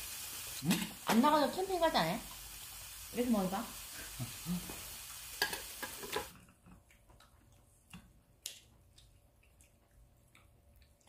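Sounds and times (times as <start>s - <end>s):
meat sizzling on grill pan: 0.0s - 6.3s.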